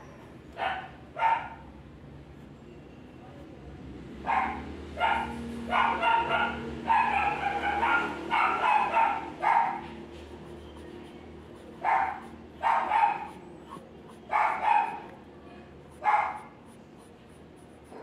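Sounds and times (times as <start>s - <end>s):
dog barking: 0.6s - 1.7s, 4.2s - 10.1s, 11.6s - 15.2s, 15.9s - 16.6s.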